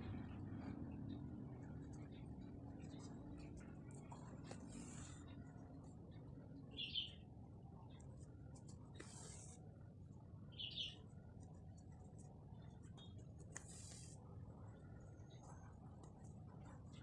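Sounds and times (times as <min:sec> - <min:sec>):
needle and thread through fabric: 0:08.5 - 0:09.6.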